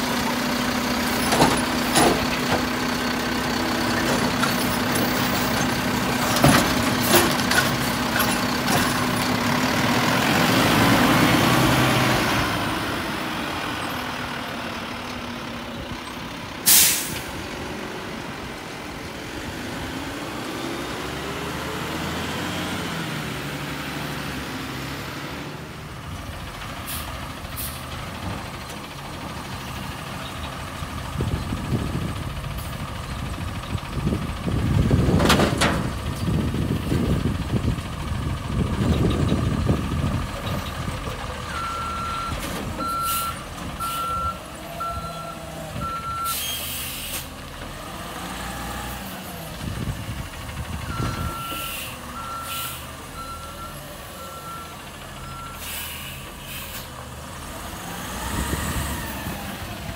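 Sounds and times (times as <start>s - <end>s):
garbage truck engine running: 0.0s - 59.9s
air brake hiss: 16.6s - 17.3s, 46.3s - 47.3s, 51.6s - 52.9s, 55.5s - 57.0s.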